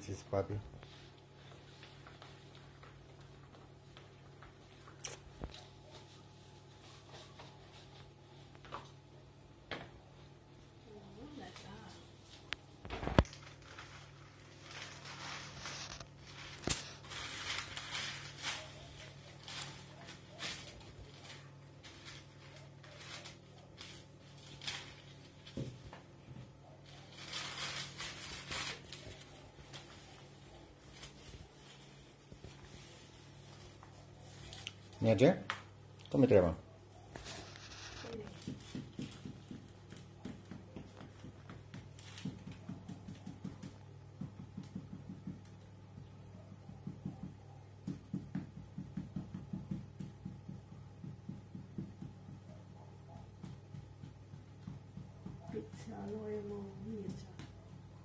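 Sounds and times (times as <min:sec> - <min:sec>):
dough handling rustles: 0:00.0 - 0:09.0, 0:11.2 - 0:35.2, 0:37.0 - 0:44.1.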